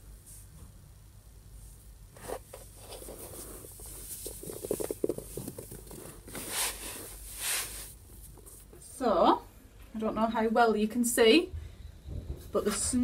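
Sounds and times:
brushing swishes: 0:02.2 - 0:08.7
fake snow crunching in hands: 0:02.8 - 0:08.3.

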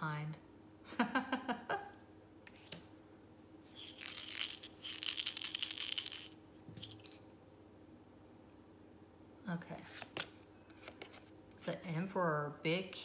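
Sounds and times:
cards being shuffled: 0:02.5 - 0:02.9, 0:03.7 - 0:07.2, 0:09.8 - 0:11.3.

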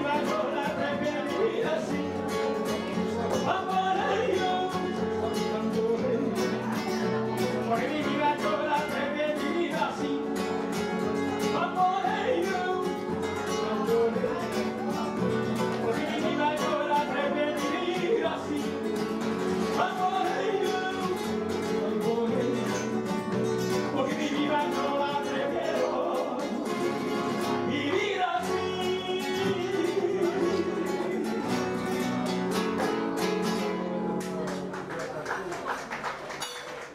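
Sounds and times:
man singing into microphone: 0:00.0 - 0:06.8, 0:07.4 - 0:10.6, 0:11.5 - 0:23.1, 0:23.8 - 0:26.9, 0:27.5 - 0:31.6
acoustic guitars strumming: 0:00.0 - 0:34.9.

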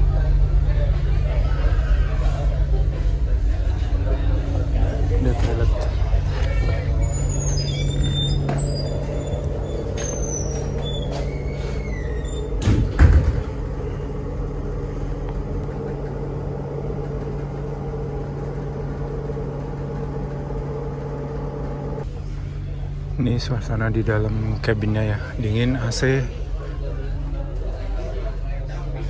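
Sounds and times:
ferry engines droning: 0:00.0 - 0:29.0
short high squeaks: 0:06.5 - 0:12.7
door shutting with thud: 0:09.8 - 0:13.9.

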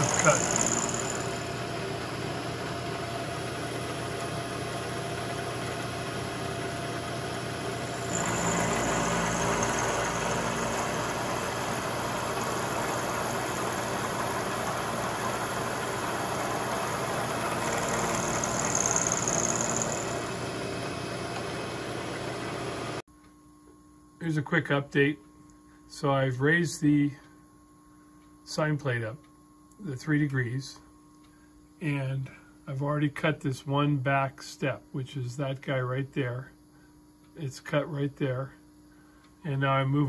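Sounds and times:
high whine: 0:00.0 - 0:01.7, 0:07.9 - 0:20.4
milling machine cutting steel: 0:00.0 - 0:02.2, 0:07.9 - 0:22.3.

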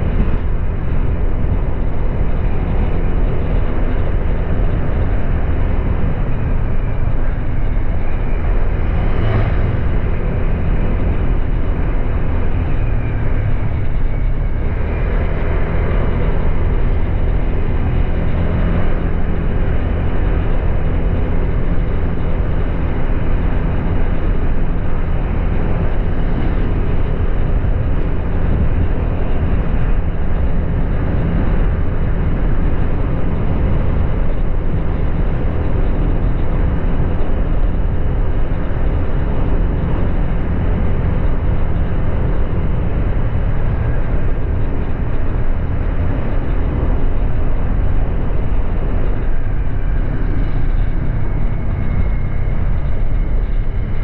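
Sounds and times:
scooter engine cruising: 0:00.0 - 0:54.0
wind rushing over microphone: 0:00.0 - 0:54.0.

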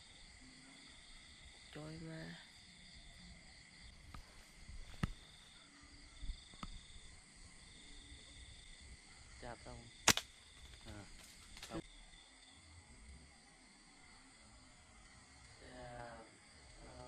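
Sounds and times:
night insects shrilling: 0:00.0 - 0:17.0
sharp clicks: 0:10.0 - 0:11.8.

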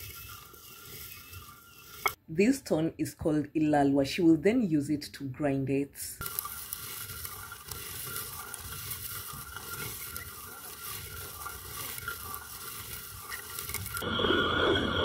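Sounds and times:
stone hand mill grinding beans: 0:00.0 - 0:02.2, 0:06.2 - 0:15.0.

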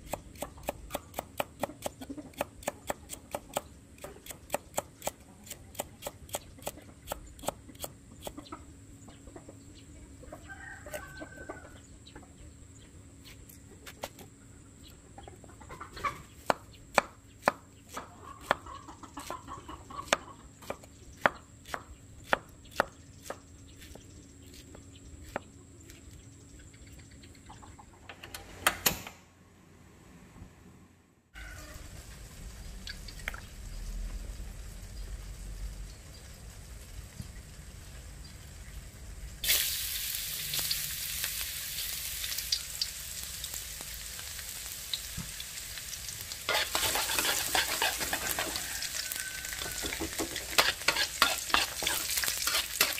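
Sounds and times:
hens clucking: 0:00.4 - 0:12.6, 0:13.5 - 0:16.6, 0:18.0 - 0:20.9, 0:26.6 - 0:28.2, 0:46.5 - 0:52.9
knife chopping on wooden board: 0:20.0 - 0:24.6.

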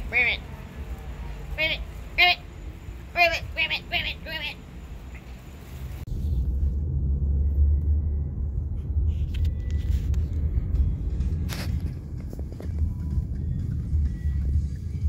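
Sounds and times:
vehicle rumble from inside: 0:00.0 - 0:15.0
rustle: 0:04.6 - 0:06.8.

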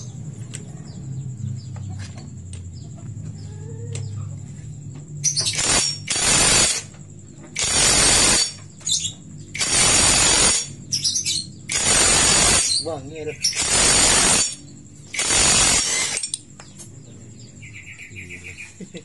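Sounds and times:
impact wrench hammering: 0:05.3 - 0:07.0, 0:07.6 - 0:08.6, 0:09.6 - 0:10.8, 0:11.7 - 0:12.8, 0:13.5 - 0:16.4.

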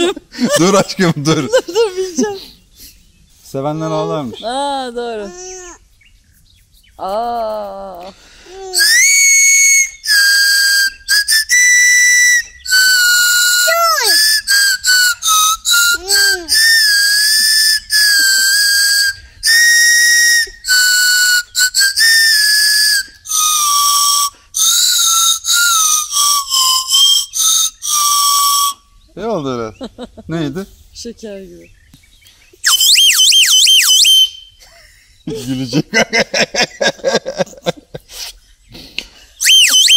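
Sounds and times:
plastic toy flute tune: 0:08.6 - 0:28.9, 0:32.6 - 0:34.6, 0:39.4 - 0:39.9.

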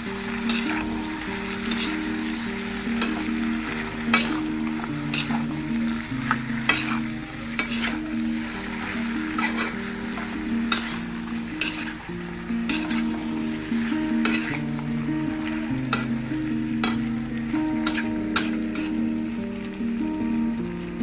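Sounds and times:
background music: 0:00.0 - 0:21.0
food sizzling: 0:00.0 - 0:21.0
spatula scraping a wok: 0:00.3 - 0:14.9, 0:17.8 - 0:19.1.

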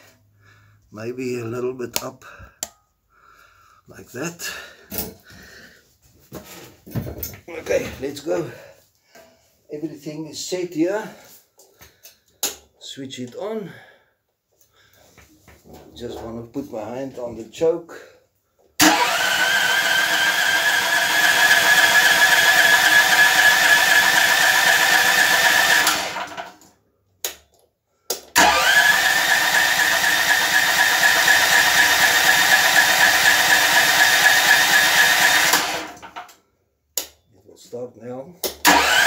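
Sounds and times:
electric starter cranking engine: 0:18.8 - 0:26.6, 0:28.4 - 0:36.3, 0:38.6 - 0:39.0.

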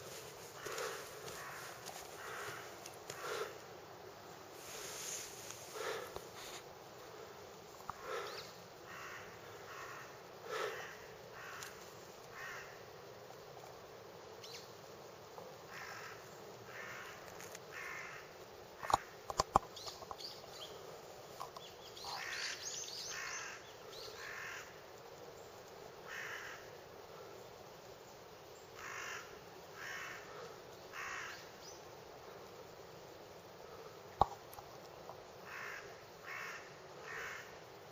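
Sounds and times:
crows cawing: 0:00.5 - 0:03.6, 0:07.9 - 0:12.8, 0:15.7 - 0:19.2, 0:22.1 - 0:24.8, 0:26.0 - 0:26.8, 0:28.8 - 0:31.5, 0:35.4 - 0:37.6.

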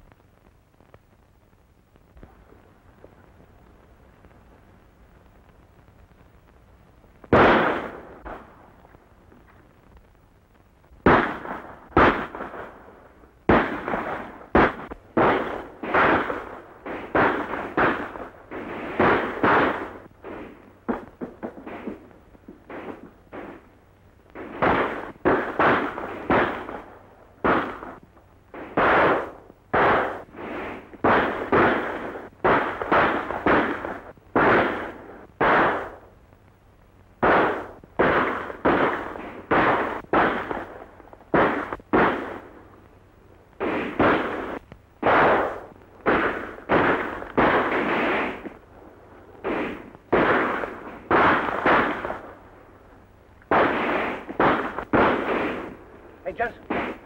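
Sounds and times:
echoing gunshots: 0:07.3 - 0:08.7, 0:11.0 - 0:23.7, 0:24.4 - 0:36.1, 0:37.2 - 0:42.7, 0:43.6 - 0:48.6, 0:49.4 - 0:52.6, 0:53.5 - 0:57.0.

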